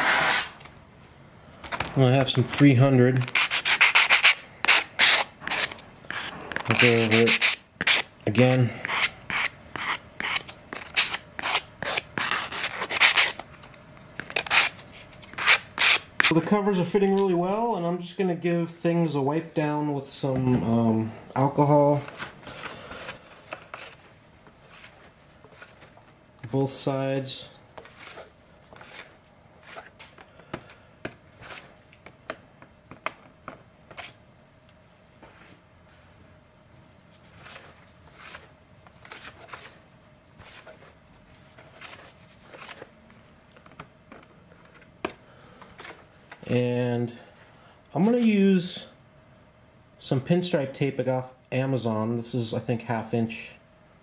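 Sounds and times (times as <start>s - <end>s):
sandpaper scratching plastic: 3.2s - 8.1s, 8.8s - 13.4s.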